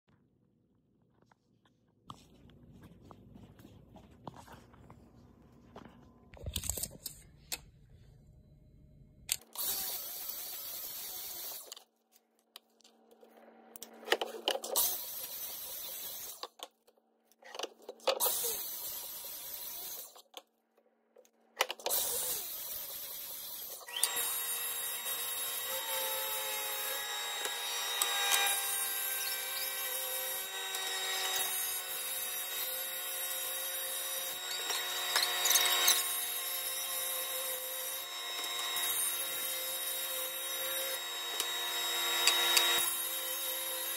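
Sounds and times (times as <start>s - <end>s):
miter saw cutting wood: 21.9s - 43.9s
table saw whining: 21.9s - 43.9s.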